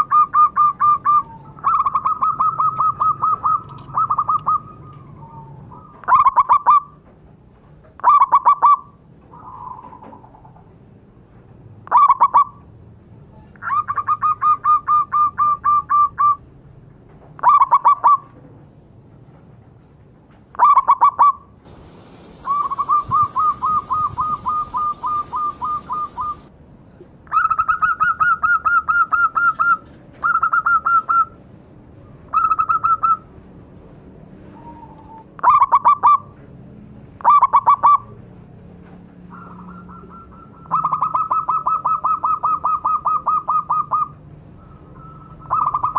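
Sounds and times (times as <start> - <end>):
dove cooing: 0.0 - 6.9, 8.0 - 10.6, 20.6 - 26.5, 39.3 - 45.9.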